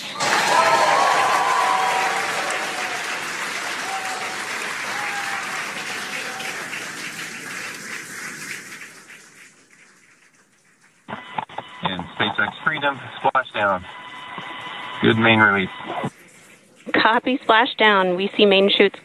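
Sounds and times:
crowd applauding: 0.0s - 10.6s.

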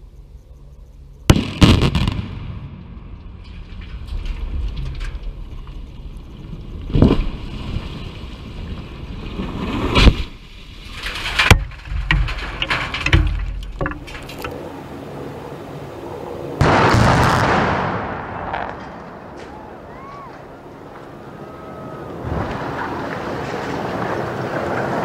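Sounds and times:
explosive demolition cracks: 1.3s - 6.0s, 6.8s - 14.4s, 16.6s - 21.0s, 22.1s - 25.0s
rumbling of falling masonry: 2.8s - 14.6s, 21.7s - 25.0s.

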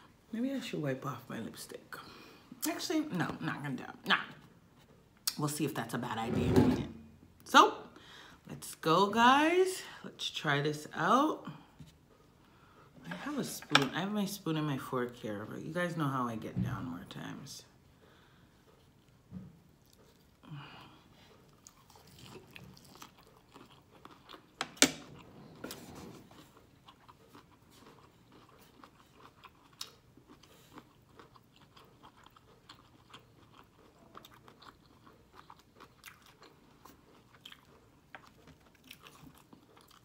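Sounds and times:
wet chewing crunches: 21.5s - 25.3s, 26.3s - 40.0s.

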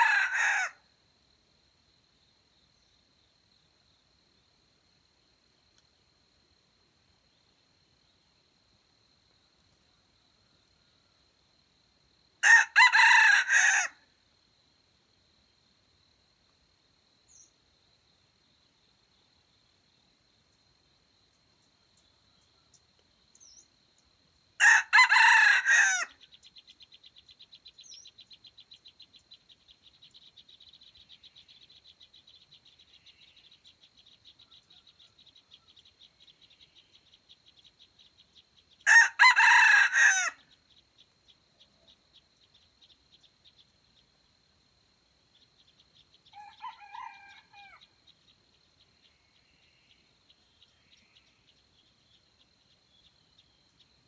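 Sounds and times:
rooster crowing: 0.0s - 0.8s, 12.4s - 14.0s, 24.6s - 26.2s, 38.8s - 40.4s, 46.3s - 47.9s.

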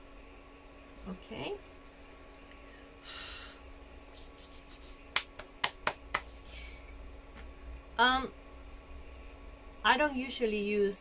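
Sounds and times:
fingertip rubbing pastel on paper: 4.1s - 5.0s
hands clapping: 5.1s - 6.4s.

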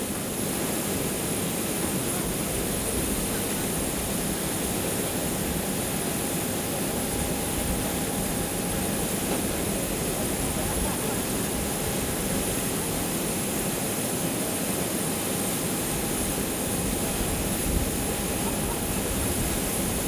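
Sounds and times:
jet turbine whine: 2.4s - 20.0s.

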